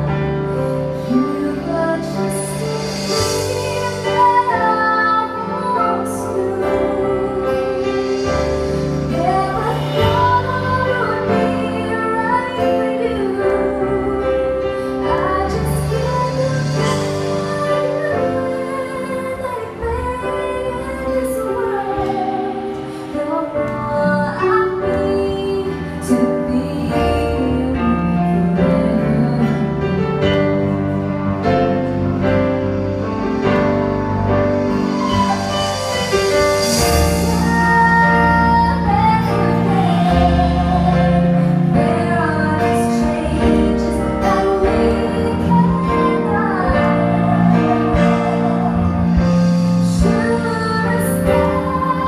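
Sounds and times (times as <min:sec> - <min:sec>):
woman singing: 0:00.0 - 0:31.1, 0:35.9 - 0:52.0
band accompaniment: 0:00.0 - 0:52.0
high shimmer: 0:02.2 - 0:11.6, 0:32.5 - 0:42.2.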